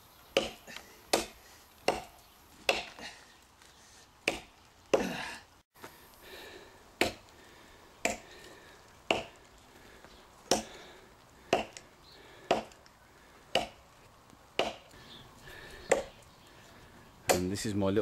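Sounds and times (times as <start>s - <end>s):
tomahawk chopping into log: 0.4s - 3.0s, 4.3s - 5.1s, 7.0s - 7.2s, 9.1s - 9.3s, 11.5s - 11.8s, 12.5s - 12.8s, 13.6s - 13.8s, 14.6s - 14.9s.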